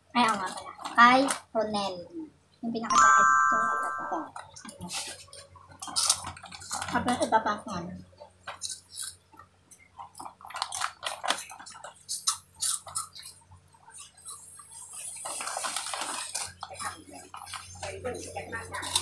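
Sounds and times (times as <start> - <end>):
small crackles and clicks: 0.1 - 1.8, 4.4 - 7.4, 8.1 - 19.0
chewing and biting: 4.6 - 6.9, 8.3 - 17.9.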